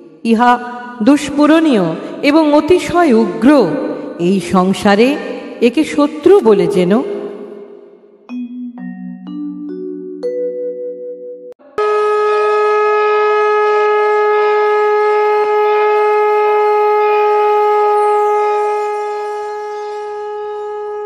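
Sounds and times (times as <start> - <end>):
conch shell blown: 11.6 - 21.0.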